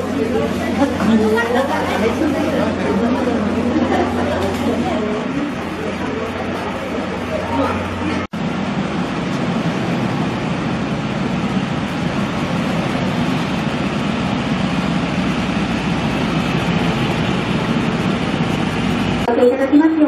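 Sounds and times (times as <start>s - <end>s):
mechanical drone with hiss: 0.0s - 19.4s.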